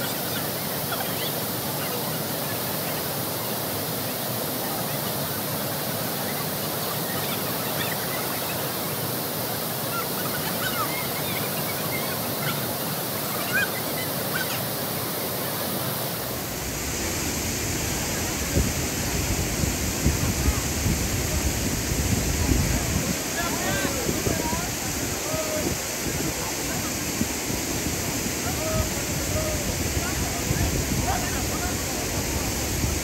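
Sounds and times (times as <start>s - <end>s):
waterfall and river rushing: 0.0s - 33.0s.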